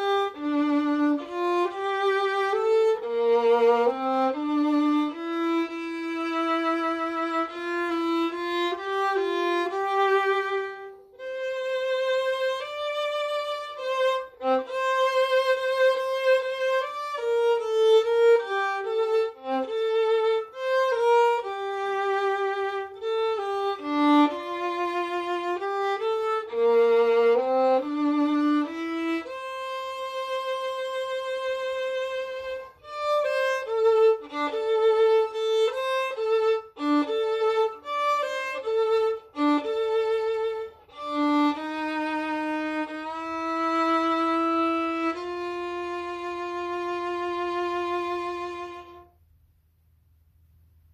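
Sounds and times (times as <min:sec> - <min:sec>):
solo violin melody: 0:00.0 - 0:49.2.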